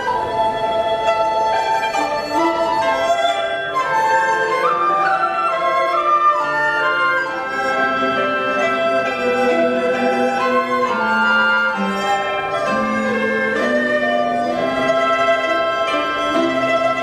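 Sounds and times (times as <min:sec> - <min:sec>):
bamboo flute: 0:00.0 - 0:17.0
bowed fiddles: 0:00.0 - 0:17.0
hammered dulcimer: 0:00.0 - 0:17.0
plucked lute: 0:00.0 - 0:17.0.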